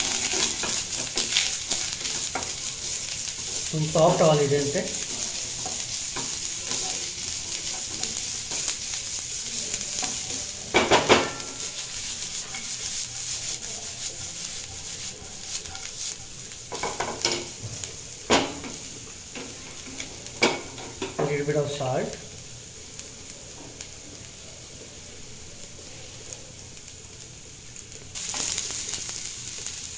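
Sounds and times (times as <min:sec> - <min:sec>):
wooden spatula scraping pan: 0:00.0 - 0:17.8
vegetables sizzling in oil: 0:00.0 - 0:29.9.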